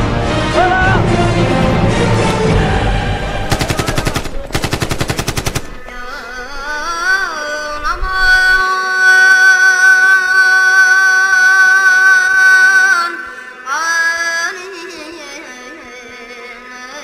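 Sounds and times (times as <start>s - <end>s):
film background music: 0.0s - 5.7s
automatic rifle fire: 3.5s - 6.0s.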